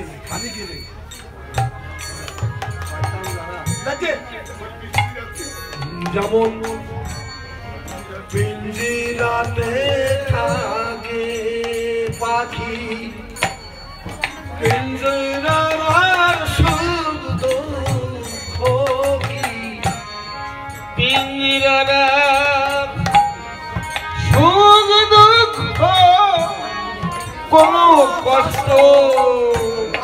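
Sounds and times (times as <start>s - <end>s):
harmonium: 0.0s - 30.0s
hand-beaten barrel drums: 1.2s - 20.2s
man singing with vibrato: 5.2s - 30.0s.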